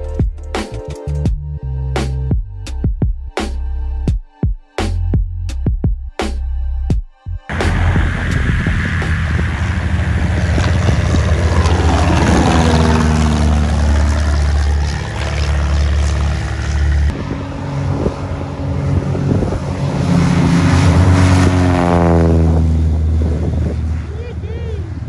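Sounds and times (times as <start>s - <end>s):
propeller airplane engine droning: 7.5s - 25.0s.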